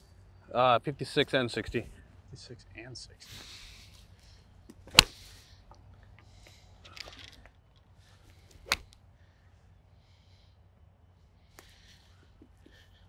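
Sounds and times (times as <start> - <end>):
golf club striking ball: 4.8 - 5.3, 8.6 - 8.9.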